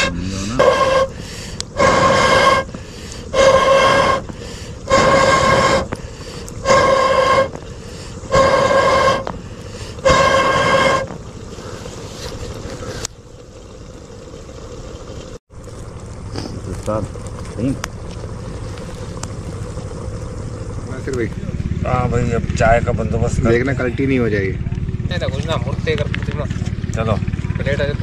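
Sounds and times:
hooting tone blown through pipe: 0.0 - 12.0.

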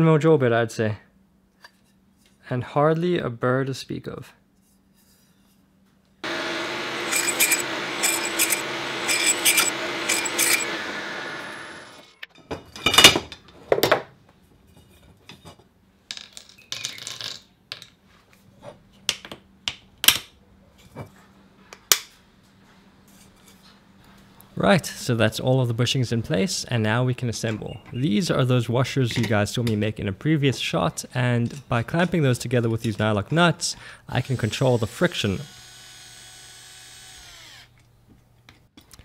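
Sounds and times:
workshop machine running: 6.2 - 12.3.

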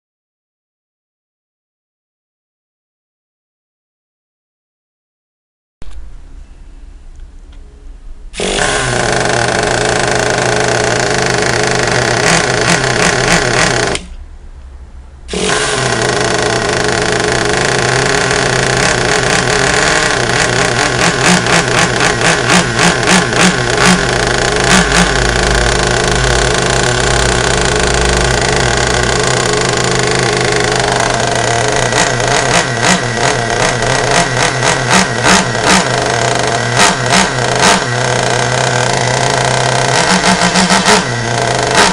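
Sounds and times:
model engine running and revving: 8.4 - 14.1, 15.3 - 41.9.

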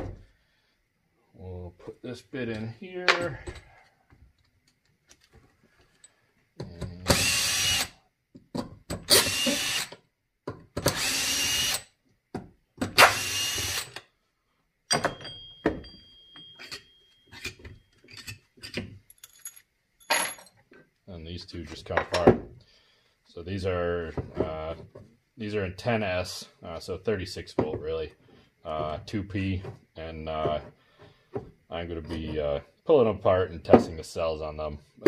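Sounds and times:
cordless drill drilling plastic: 7.1 - 7.9, 9.1 - 10.0, 10.8 - 11.8, 13.0 - 14.0.

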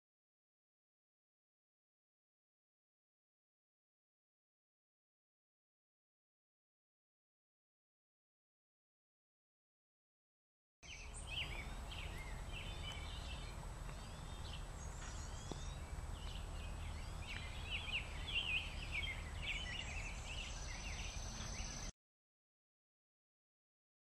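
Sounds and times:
songbirds chirping and singing: 10.8 - 21.9
low steady rumble: 10.9 - 21.9.

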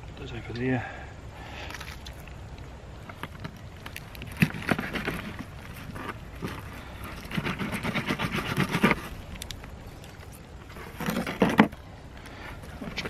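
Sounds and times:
knife crunching and scraping fish: 3.1 - 11.8.

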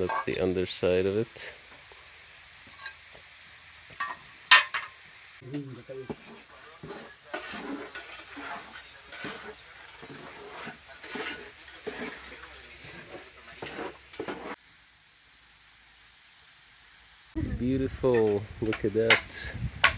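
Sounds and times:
wet mortar squelching scrapes: 5.8 - 14.6.

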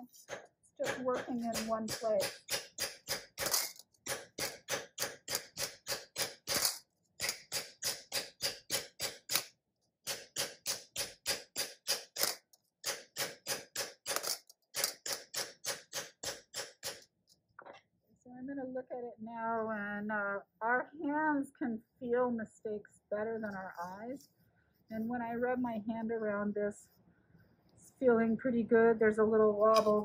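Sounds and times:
mallet hammering copper disc: 0.8 - 12.2, 12.8 - 17.1.

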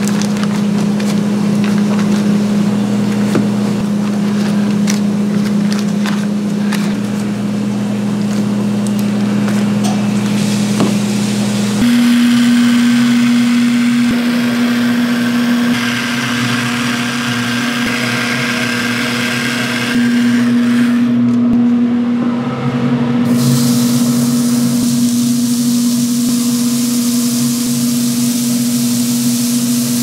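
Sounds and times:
low machine hum: 0.0 - 30.0
hiss: 23.3 - 30.0.

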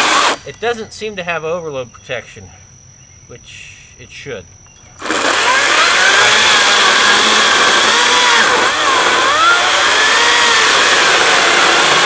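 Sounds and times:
chainsaw cutting log: 0.0 - 0.4, 5.0 - 12.0.

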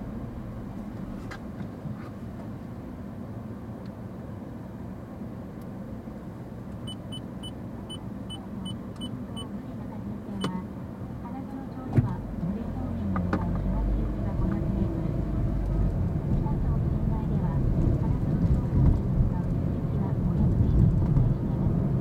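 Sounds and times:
car engine idling: 0.0 - 1.6
city traffic: 0.0 - 22.0
short high-pitched beeps: 6.8 - 9.5.

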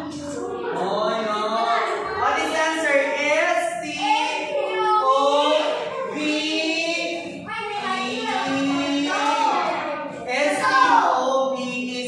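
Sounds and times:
children singing in unison: 3.9 - 11.3.

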